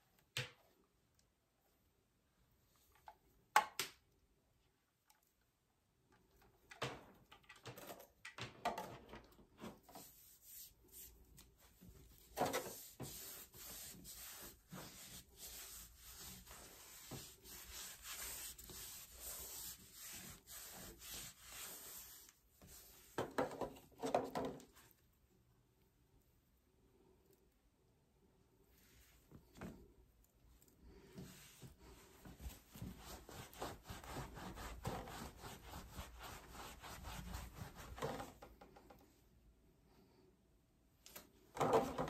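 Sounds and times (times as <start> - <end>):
towel rubbing against skin: 9.9 - 23.2, 31.2 - 38.2.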